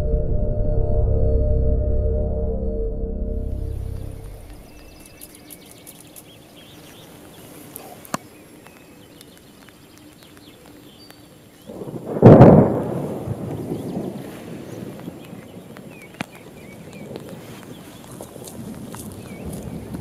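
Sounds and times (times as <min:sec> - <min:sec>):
faint bird chirps: 0:03.6 - 0:11.8
thunder crack: 0:11.7 - 0:15.8.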